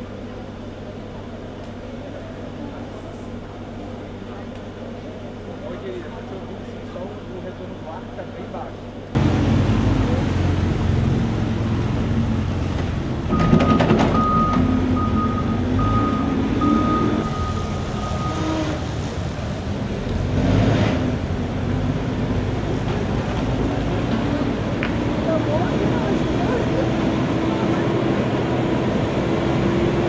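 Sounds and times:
large vehicle engine running: 0:00.0 - 0:30.0
reversing alarm beeping: 0:13.3 - 0:18.7.

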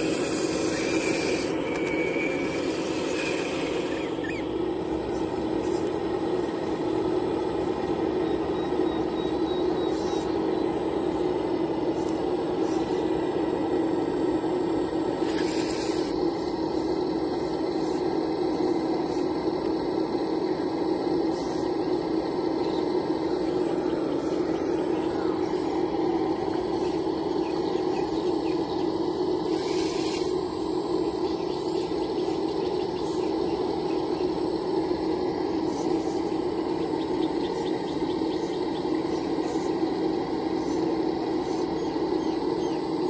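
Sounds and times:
hydraulic hisses: 0:00.0 - 0:05.9, 0:15.1 - 0:19.5, 0:21.1 - 0:31.0
hydraulic pump motor whine: 0:00.0 - 0:43.0.

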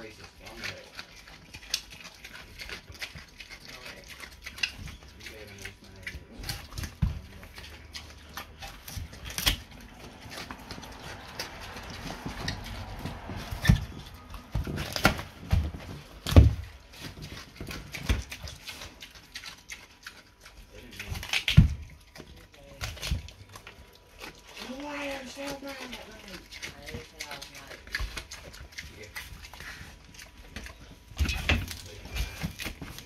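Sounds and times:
pig chewing and crunching: 0:00.0 - 0:33.0.

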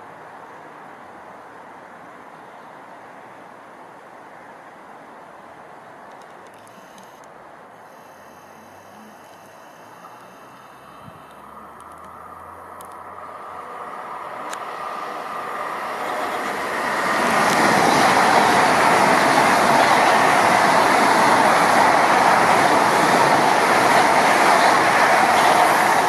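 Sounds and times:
high-speed train rushing past: 0:07.8 - 0:26.0.

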